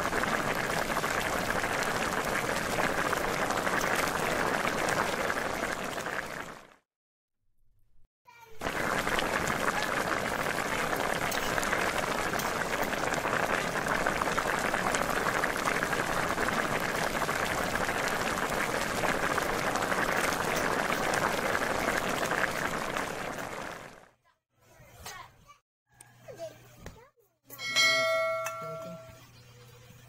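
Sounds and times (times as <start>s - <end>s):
sauce bubbling and sizzling in wok: 0.0s - 6.8s, 8.5s - 24.1s.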